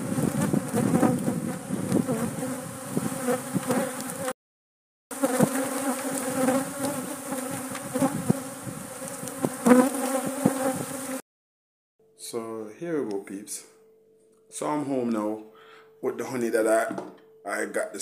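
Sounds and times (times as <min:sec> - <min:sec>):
bee buzzing close past: 0:00.0 - 0:04.4, 0:05.1 - 0:11.2
swarm of bees buzzing: 0:00.0 - 0:04.4, 0:05.1 - 0:11.2.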